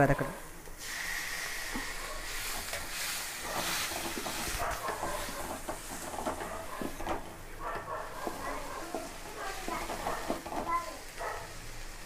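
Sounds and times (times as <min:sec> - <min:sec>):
tomatoes sizzling in hot oil: 0:00.8 - 0:12.0
wooden spatula scraping metal pan: 0:02.4 - 0:11.0.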